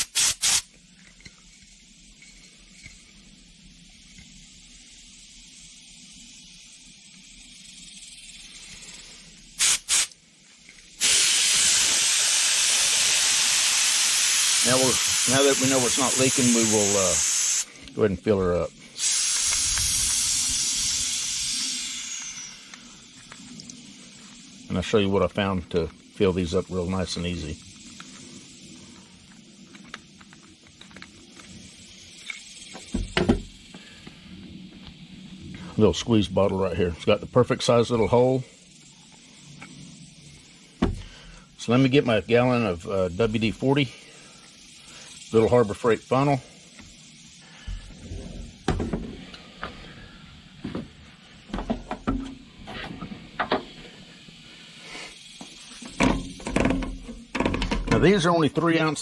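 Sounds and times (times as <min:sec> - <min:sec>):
loud rush of air: 0:00.0 - 0:00.7, 0:09.6 - 0:10.2, 0:11.0 - 0:17.9, 0:18.8 - 0:23.2
faint steady hiss: 0:00.0 - 0:59.0
objects knocking on metal workbench: 0:32.9 - 0:33.5, 0:55.9 - 0:58.0.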